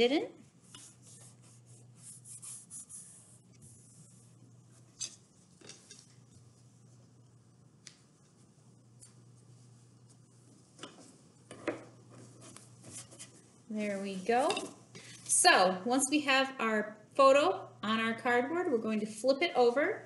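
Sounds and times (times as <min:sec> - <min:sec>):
low steady hum: 0:00.0 - 0:20.0
rubbing and scraping on paper: 0:00.6 - 0:04.9, 0:12.1 - 0:13.5.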